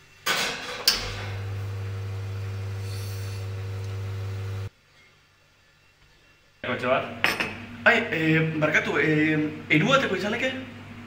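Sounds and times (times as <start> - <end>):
espresso machine pump humming: 1.2 - 4.7.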